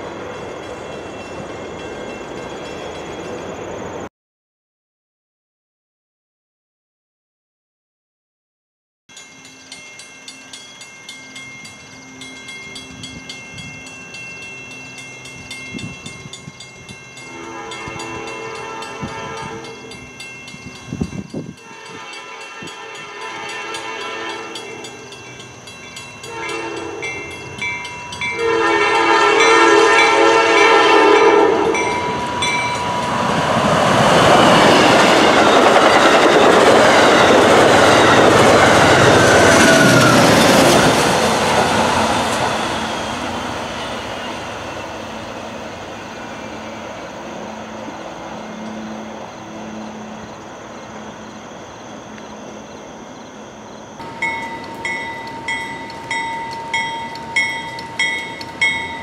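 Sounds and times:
train horn blasts: 17.2 - 20.0, 21.5 - 25.0, 26.2 - 27.6, 28.2 - 33.4
train wheels clattering on rail: 31.6 - 44.0, 54.0 - 59.0.

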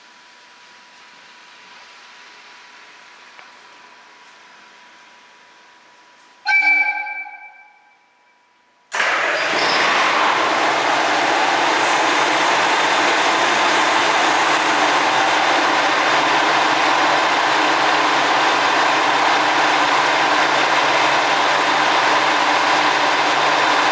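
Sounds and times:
diesel engine idling: 9.2 - 23.9.

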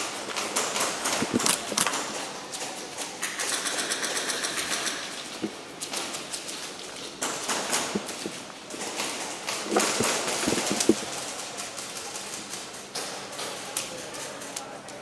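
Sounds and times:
airsoft guns firing bursts: 3.2 - 5.4.

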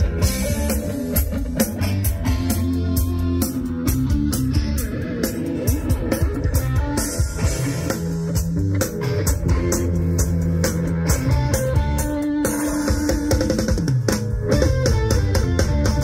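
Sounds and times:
drum kit beat: 0.0 - 16.0
electric guitar melody: 0.0 - 16.0
held bass notes: 0.0 - 16.0.

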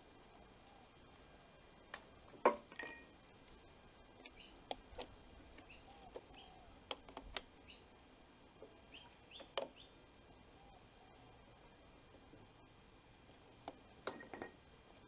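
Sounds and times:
small bird chirping: 4.2 - 4.7, 5.5 - 6.8, 7.6 - 7.9, 8.8 - 10.0.

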